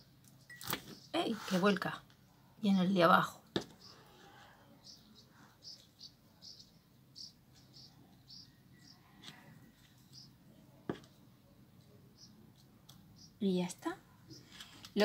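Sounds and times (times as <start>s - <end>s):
faint high-pitched chirps: 3.8s - 10.4s.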